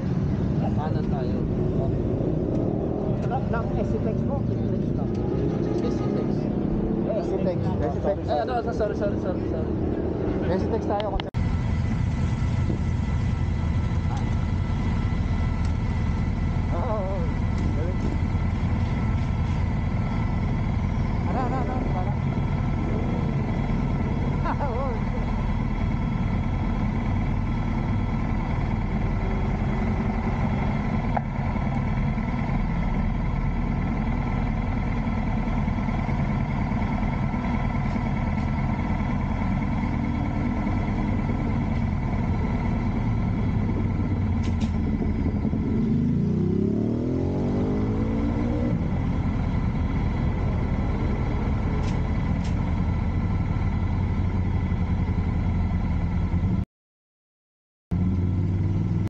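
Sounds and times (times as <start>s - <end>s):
road traffic passing: 0.0s - 56.6s, 57.9s - 59.0s
motorcycle engine idling: 11.4s - 46.2s, 48.8s - 56.6s, 58.0s - 59.0s.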